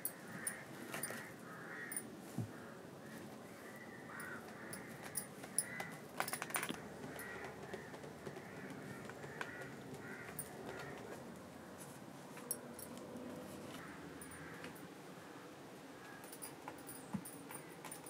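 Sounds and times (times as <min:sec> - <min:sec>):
crows cawing: 0:00.1 - 0:06.0, 0:07.0 - 0:11.2, 0:13.8 - 0:15.4.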